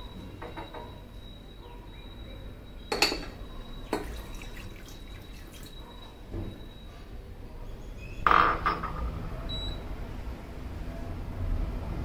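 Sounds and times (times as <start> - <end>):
glass bowl knocking: 2.9 - 6.6
water pouring into saucepan: 3.8 - 6.1.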